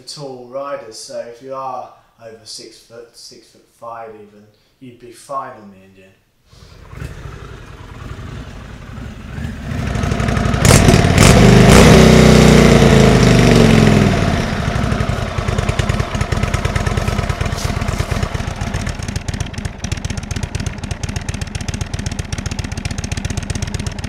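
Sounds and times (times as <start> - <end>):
motorcycle riding past: 6.6 - 24.0
motorcycle engine idling: 6.8 - 24.0.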